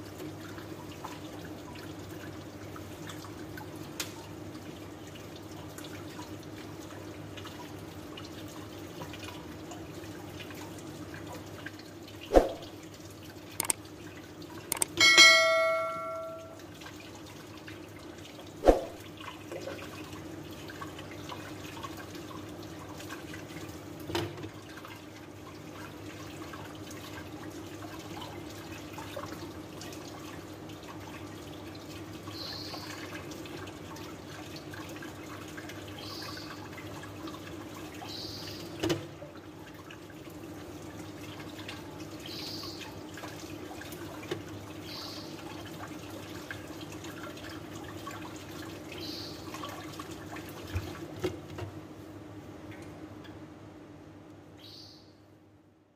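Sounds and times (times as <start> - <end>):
tap water splashing in sink: 3.0 - 4.4, 16.8 - 32.0, 38.6 - 40.2, 42.8 - 44.8, 49.5 - 51.8.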